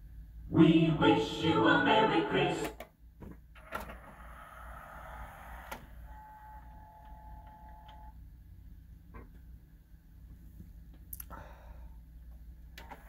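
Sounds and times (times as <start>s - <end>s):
faint steady whine with ticks: 5.6s - 11.3s, 12.0s - 13.0s.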